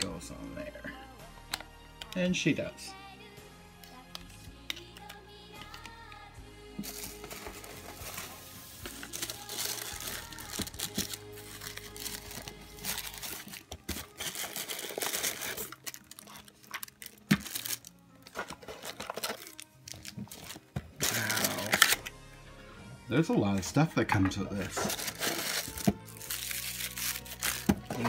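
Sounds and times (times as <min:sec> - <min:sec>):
quiet background music: 0:00.0 - 0:28.0
tissue paper crinkling: 0:06.8 - 0:17.9, 0:18.5 - 0:22.0, 0:24.8 - 0:28.0.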